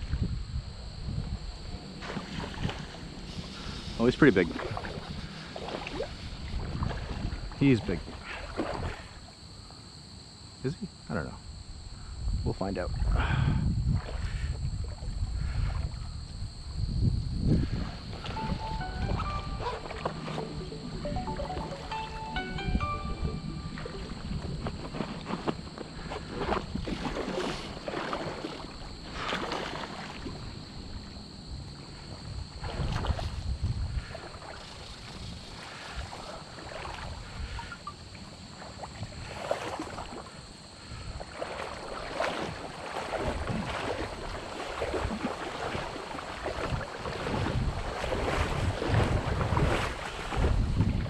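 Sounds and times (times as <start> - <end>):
wind buffeting microphone: 0.0 - 8.2, 11.8 - 21.0, 23.2 - 27.9, 32.2 - 36.2, 42.4 - 51.0
river water flowing: 18.0 - 26.4, 41.2 - 48.9.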